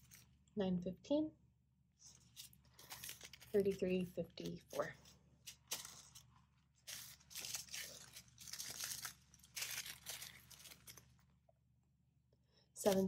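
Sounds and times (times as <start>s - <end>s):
plastic bags crinkling: 0.0s - 0.5s, 2.0s - 11.3s.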